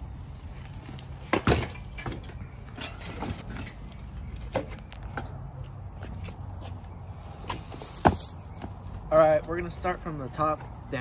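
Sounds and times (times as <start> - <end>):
bike frame knocks and rattles: 0.8 - 5.4
bike metallic clank: 1.3 - 3.8.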